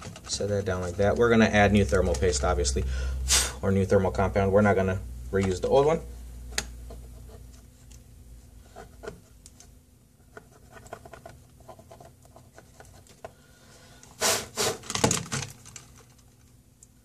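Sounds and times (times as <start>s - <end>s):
small parts clicking and scratching: 8.7s - 13.3s, 14.8s - 17.0s.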